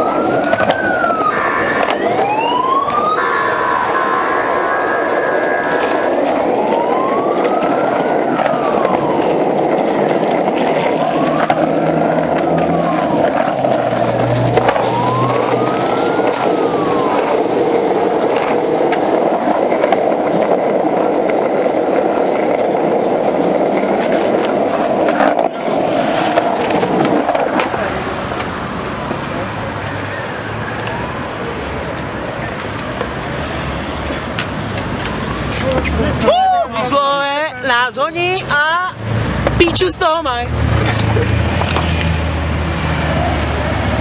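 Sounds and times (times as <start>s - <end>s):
faint rising and falling tone: 0.0s - 18.8s
skateboard wheels rolling on concrete: 0.0s - 44.0s
skateboard clacks over pavement joints: 0.1s - 2.2s, 6.7s - 30.0s, 34.0s - 36.3s, 40.7s - 42.2s.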